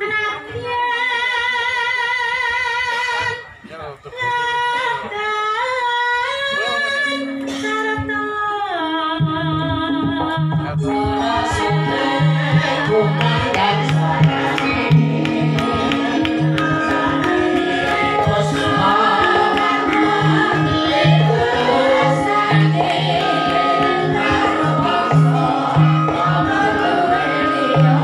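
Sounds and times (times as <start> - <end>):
woman singing: 0.0 - 3.4, 4.2 - 28.0
gamelan music: 10.9 - 28.0.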